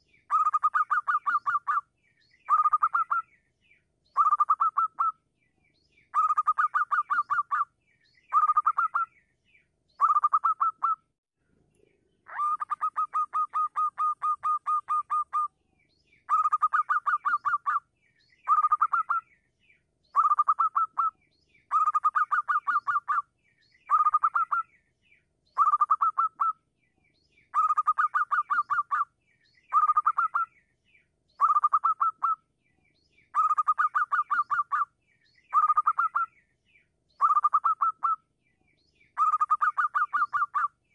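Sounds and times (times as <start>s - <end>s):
dove cooing: 12.3s - 15.5s.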